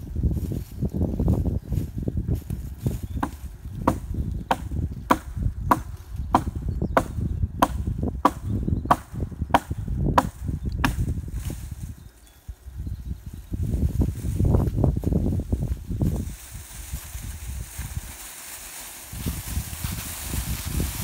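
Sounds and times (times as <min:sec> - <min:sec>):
axe chopping wood: 0:03.2 - 0:11.2.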